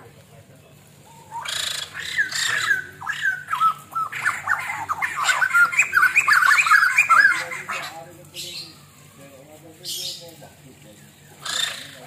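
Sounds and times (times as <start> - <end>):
bird chattering call: 1.0 - 8.9, 9.8 - 10.4, 11.0 - 12.0.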